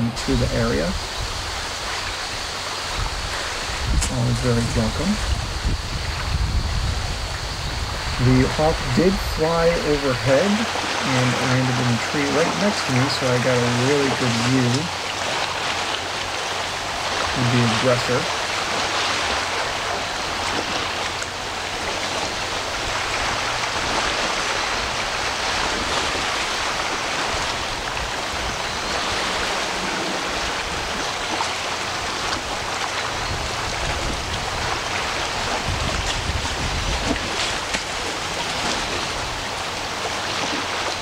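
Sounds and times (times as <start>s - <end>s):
steady outdoor rushing noise: 0.0s - 41.0s.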